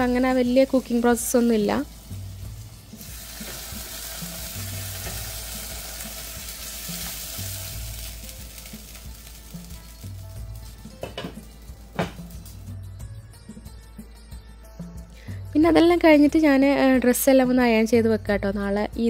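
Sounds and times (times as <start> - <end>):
hot oil sizzling: 0.0 - 13.1.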